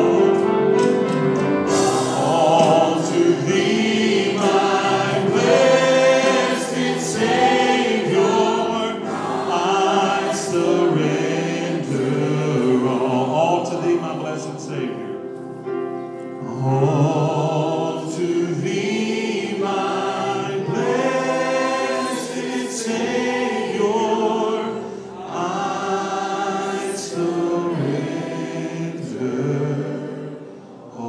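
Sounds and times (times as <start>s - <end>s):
band singing with guitars: 1.7s - 13.2s.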